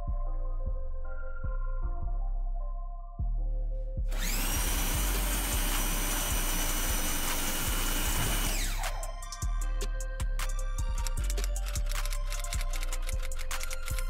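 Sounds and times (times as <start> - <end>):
background music: 0.0 - 14.0
pressure washer whine: 4.1 - 9.2.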